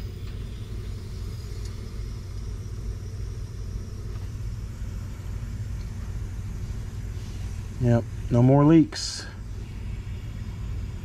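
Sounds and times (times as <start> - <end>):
low machine hum: 0.0 - 11.0
low rumble: 0.0 - 11.0.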